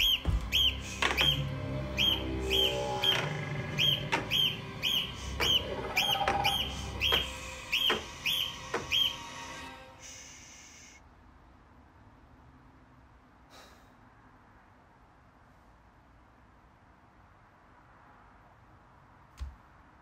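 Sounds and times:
bird-like chirps: 0:00.0 - 0:09.5
low horror film score: 0:00.0 - 0:11.0.

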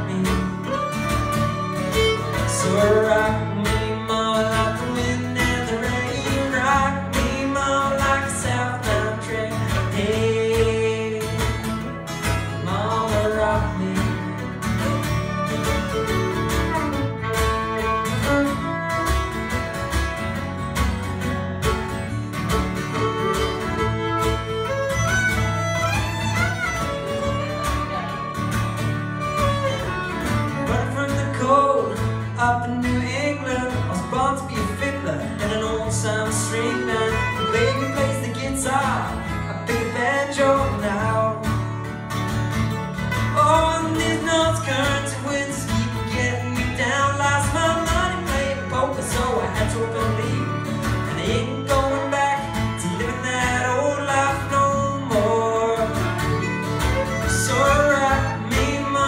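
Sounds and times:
man singing: 0:00.0 - 0:15.5, 0:30.5 - 0:41.9, 0:43.2 - 0:59.0
fiddle: 0:00.0 - 0:59.0
plucked string instrument: 0:00.0 - 0:59.0
strummed acoustic guitar: 0:00.0 - 0:59.0.

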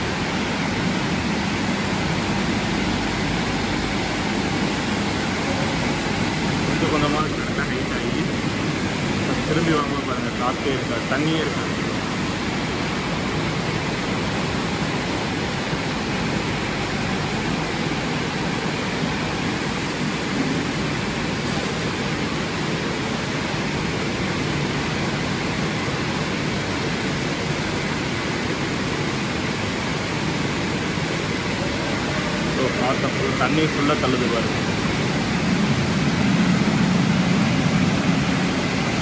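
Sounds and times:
car wash blower rushing air: 0:00.0 - 0:39.0.

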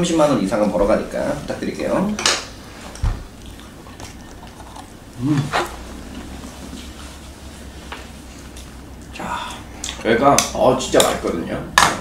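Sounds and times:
chewing: 0:03.4 - 0:07.0.

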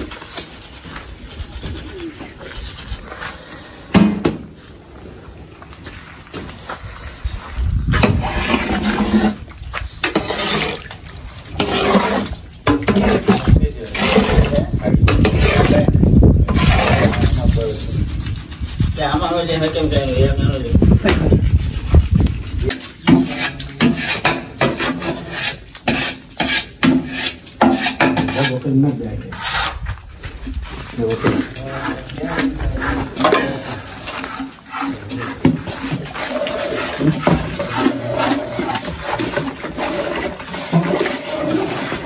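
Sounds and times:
metal ladle scraping a pot: 0:07.8 - 0:42.0
spatula stirring thick curry: 0:07.9 - 0:29.8, 0:30.4 - 0:42.0.

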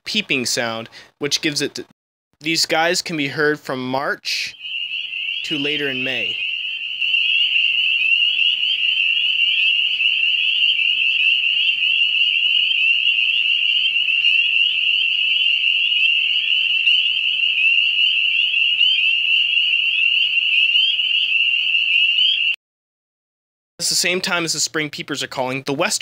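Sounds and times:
chorus of frogs peeping: 0:04.5 - 0:22.6.

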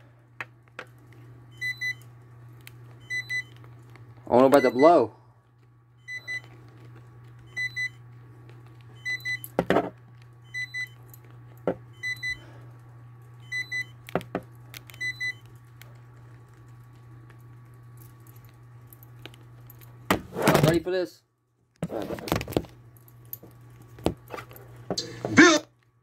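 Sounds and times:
steady low hum: 0:00.0 - 0:26.0
electronic alarm beeping: 0:01.5 - 0:02.0, 0:03.0 - 0:03.5, 0:04.4 - 0:05.0, 0:06.0 - 0:06.5, 0:07.5 - 0:08.0, 0:09.0 - 0:09.5, 0:10.4 - 0:11.0, 0:11.9 - 0:12.4, 0:13.4 - 0:14.0, 0:15.0 - 0:15.4.

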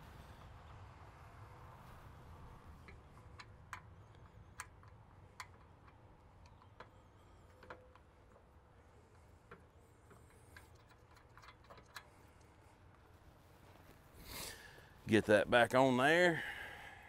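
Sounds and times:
light clicks and taps: 0:02.8 - 0:13.1.

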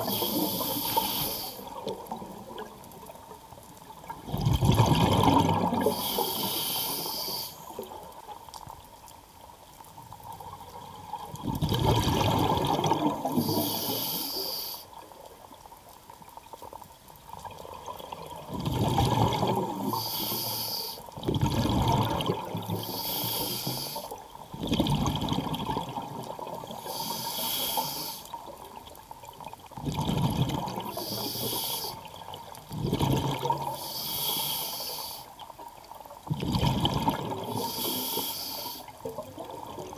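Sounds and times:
regulator breathing hiss: 0:00.0 - 0:01.7, 0:05.9 - 0:07.7, 0:13.3 - 0:15.0, 0:19.8 - 0:21.0, 0:22.8 - 0:24.2, 0:26.8 - 0:28.4, 0:30.9 - 0:32.0, 0:33.7 - 0:35.3, 0:37.5 - 0:39.0
exhaust bubbles underwater: 0:03.9 - 0:06.2, 0:11.2 - 0:14.0, 0:17.4 - 0:20.3, 0:21.1 - 0:23.5, 0:24.4 - 0:27.1, 0:28.3 - 0:33.8, 0:36.2 - 0:38.2, 0:38.9 - 0:39.9.

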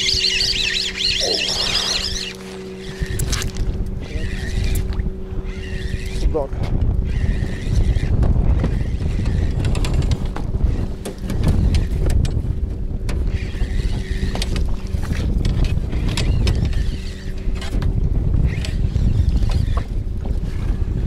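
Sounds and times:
faint steady hum: 0:00.0 - 0:09.6
wind rumbling on microphone: 0:00.0 - 0:21.0.

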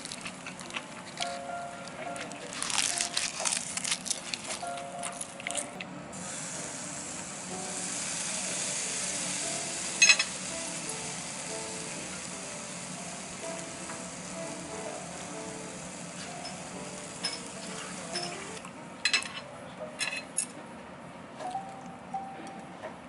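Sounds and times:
crisp clicks and crunches: 0:00.0 - 0:01.4, 0:02.2 - 0:05.8
meat sizzling on grill: 0:00.0 - 0:05.4, 0:06.1 - 0:18.6
soft background music: 0:00.0 - 0:23.0.

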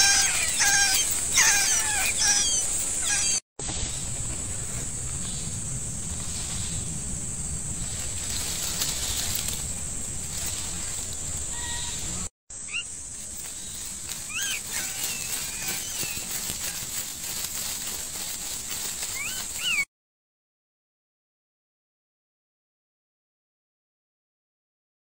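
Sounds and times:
bird chirps: 0:00.0 - 0:04.0, 0:11.4 - 0:16.8.

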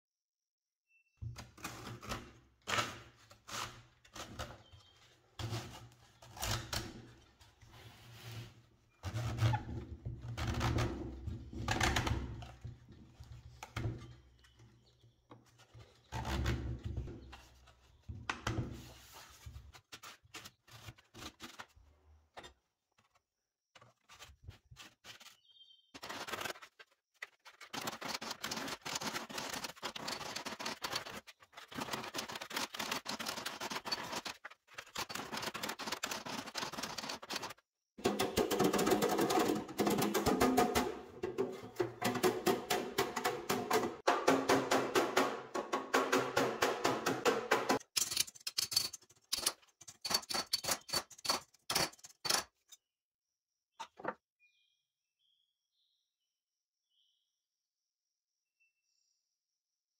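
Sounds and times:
panels knocking and scraping: 0:27.3 - 0:52.6.

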